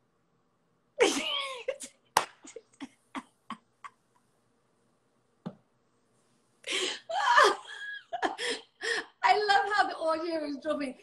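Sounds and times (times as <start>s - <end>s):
women laughing: 6.7s - 8.6s.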